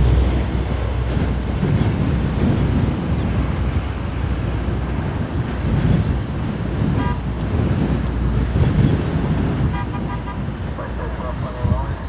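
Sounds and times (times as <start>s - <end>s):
turboprop engines rumbling: 0.0s - 12.0s.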